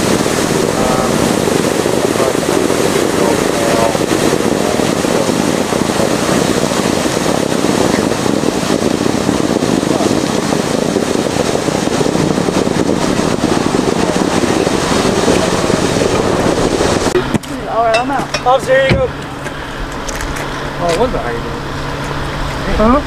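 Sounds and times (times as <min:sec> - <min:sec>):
water spraying from fire hydrant: 0:00.0 - 0:23.0.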